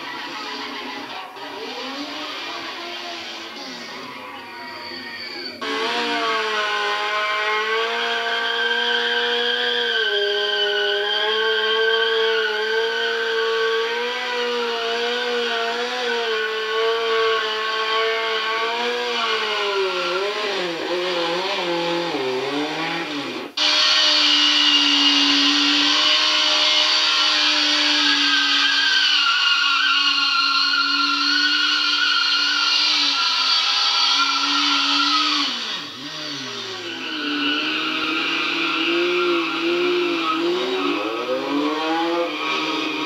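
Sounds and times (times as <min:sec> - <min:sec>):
motorcycle engine at high revs: 0:05.6 - 0:43.0
second motorcycle engine revving: 0:05.6 - 0:43.0.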